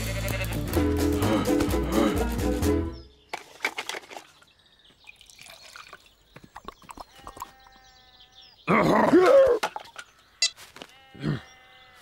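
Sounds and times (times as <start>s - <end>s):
tea pouring into a cup: 5.0s - 6.1s.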